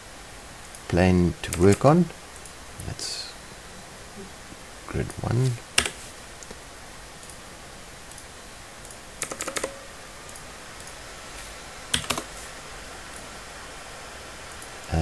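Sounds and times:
faint steady hiss: 0.0s - 15.0s
computer mouse and keyboard clicks: 8.8s - 11.0s, 11.9s - 12.3s.

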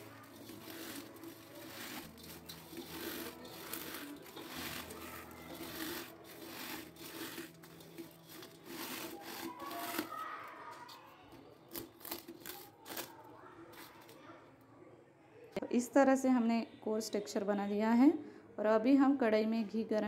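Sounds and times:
flakes crunching against metal bowl: 0.0s - 10.4s, 11.7s - 14.2s.

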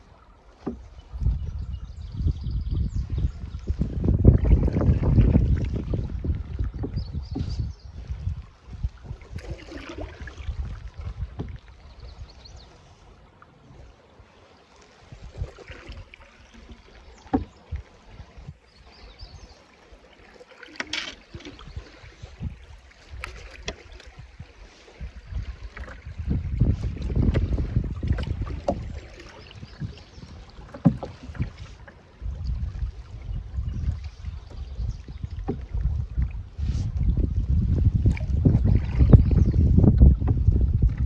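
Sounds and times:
paddle splashes and drips: 0.0s - 1.7s, 3.0s - 41.0s
wind rumbling on microphone: 0.0s - 14.0s, 15.0s - 19.6s, 20.8s - 41.0s.

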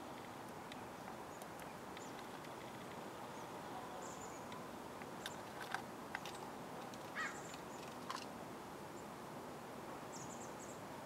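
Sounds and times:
outdoor background hiss: 0.0s - 11.0s.

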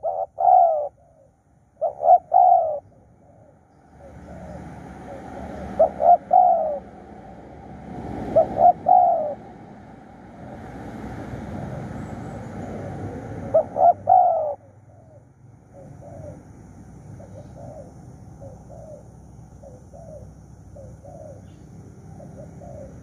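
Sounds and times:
dove cooing: 0.0s - 7.1s, 8.2s - 9.5s, 12.5s - 16.5s, 17.2s - 23.0s
steady background noise: 0.0s - 23.0s.

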